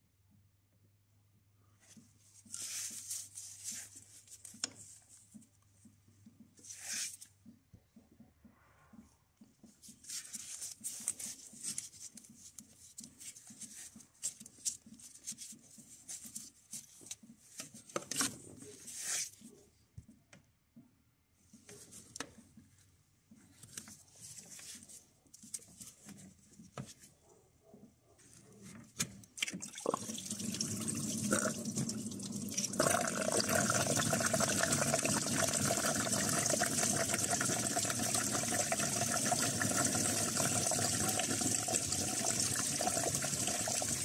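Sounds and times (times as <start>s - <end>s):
gloved hands rubbing hoses: 1.8s - 7.4s, 9.4s - 19.6s, 21.4s - 27.1s.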